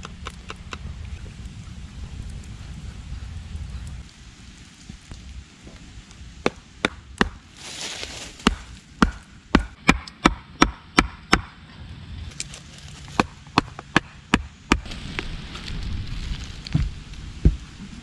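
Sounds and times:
wooden club striking wooden stake: 8.4s - 11.5s.

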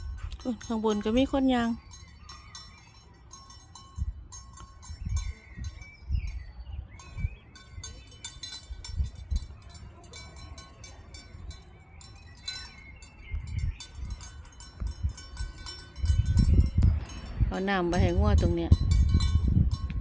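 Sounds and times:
livestock bells ringing: 0.0s - 20.0s
dull low thumps: 12.5s - 20.0s.

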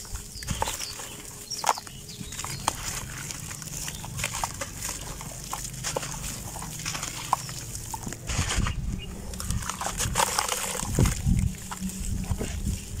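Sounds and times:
grit falling into water: 9.3s - 11.8s.

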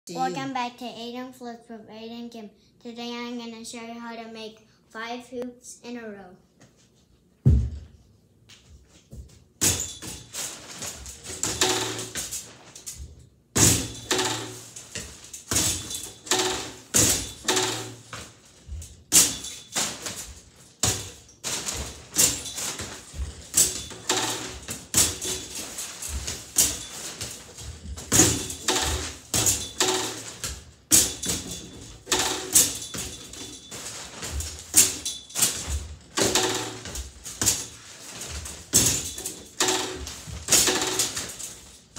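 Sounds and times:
basketballs thudding on backboard: 7.4s - 8.0s, 13.0s - 41.4s.

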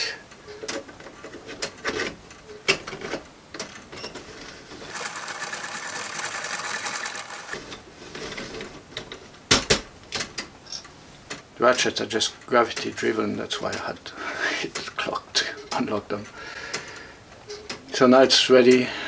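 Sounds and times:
clock winding ratchet clicking: 4.9s - 7.6s.

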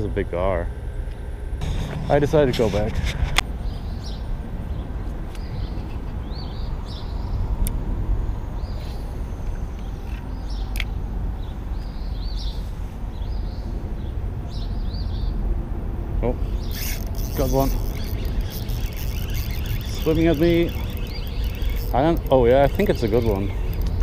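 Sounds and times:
highway traffic rumble: 0.0s - 24.0s
bird chirping: 2.6s - 7.5s, 16.4s - 24.0s
sharp clicks: 16.7s - 24.0s.

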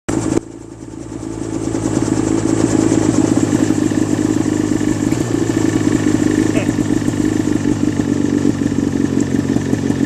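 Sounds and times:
helicopter engine and rotor: 0.1s - 10.0s.

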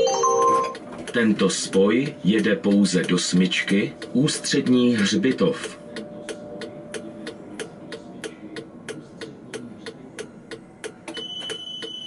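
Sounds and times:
high-pitched beep: 0.0s - 0.8s.

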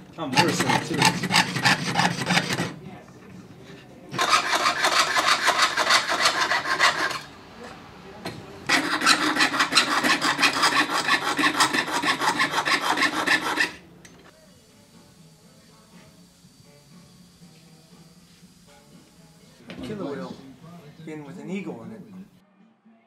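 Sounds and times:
saw rasping through metal sheet: 0.3s - 2.8s, 4.2s - 7.3s, 8.7s - 13.8s.

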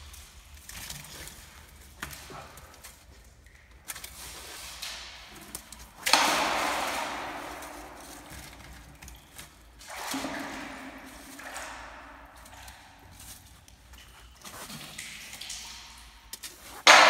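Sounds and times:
magnet splashing into water: 5.9s - 9.0s.

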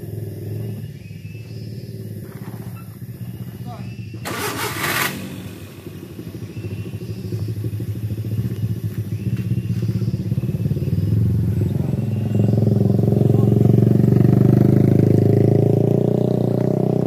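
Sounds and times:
pickup engine revving: 4.1s - 17.0s.

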